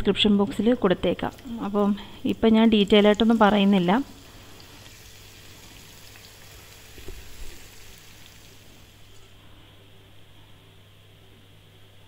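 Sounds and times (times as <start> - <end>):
vegetables sizzling in pan: 2.2 - 9.2.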